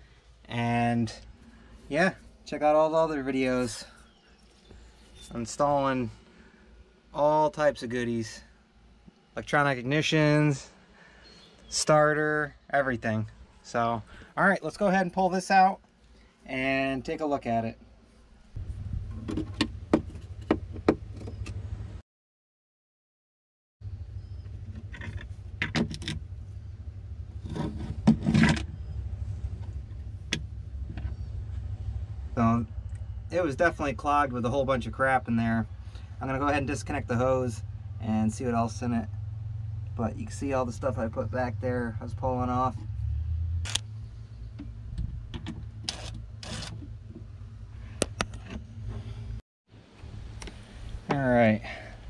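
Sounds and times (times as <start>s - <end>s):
low rumble: 18.4s - 19.9s, 28.7s - 49.4s
plastic scraping: 27.4s - 28.7s.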